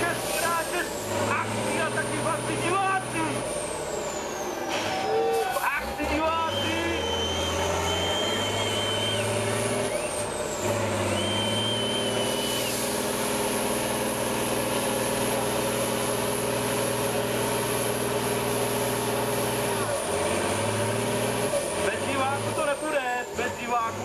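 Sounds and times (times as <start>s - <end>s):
diesel truck engine at high revs: 0.0s - 24.0s
thin high whistle: 6.5s - 10.1s, 11.2s - 12.8s.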